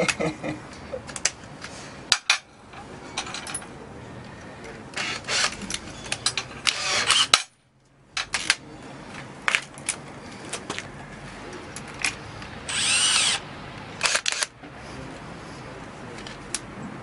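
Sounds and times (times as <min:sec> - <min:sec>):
drill chuck clicks and clinks: 0:12.7 - 0:13.4.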